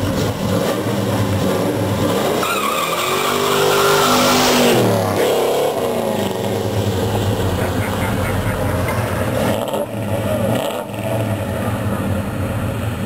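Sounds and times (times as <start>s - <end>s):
car engine revving: 0.0s - 13.0s
tires squealing: 2.1s - 11.8s.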